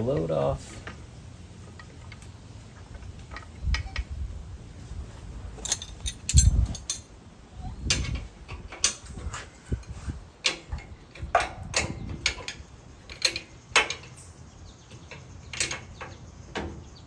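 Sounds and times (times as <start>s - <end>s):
sharp metal clicks: 10.4s - 16.7s.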